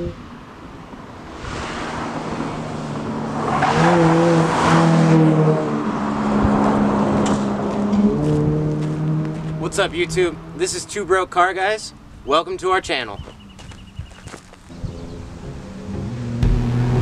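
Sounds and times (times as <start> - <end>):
car driving past: 0.8 - 10.7.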